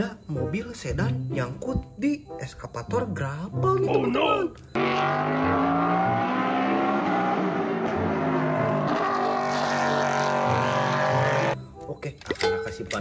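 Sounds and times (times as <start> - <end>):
race car engine at high revs: 4.8 - 11.6.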